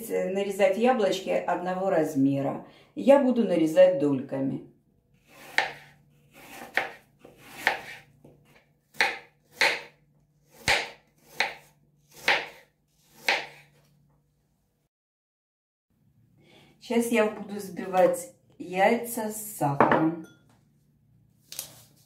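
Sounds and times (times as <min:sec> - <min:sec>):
knife slicing apples on board: 0:05.2 - 0:13.9.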